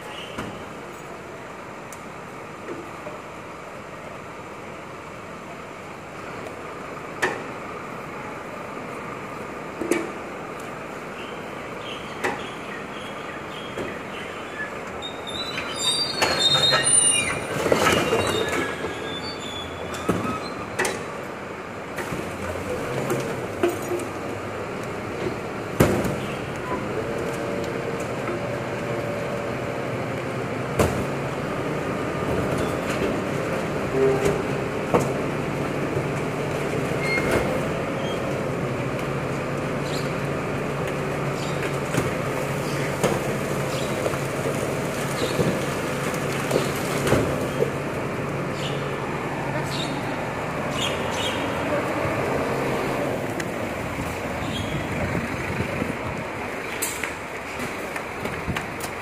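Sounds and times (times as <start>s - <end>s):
high metal squeals and creaks: 15.0s - 20.7s
diesel truck engine running: 21.1s - 59.0s.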